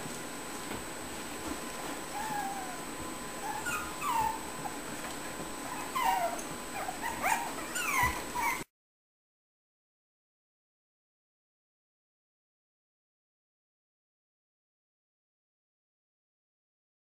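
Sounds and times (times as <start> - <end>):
puppies whimpering and yipping: 2.1 - 4.9, 5.6 - 8.7.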